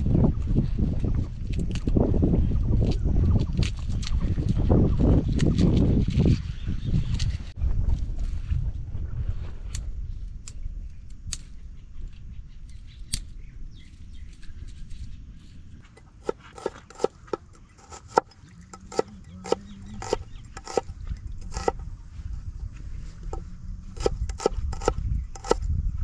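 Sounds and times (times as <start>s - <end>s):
low steady rumble: 17.2s - 26.0s.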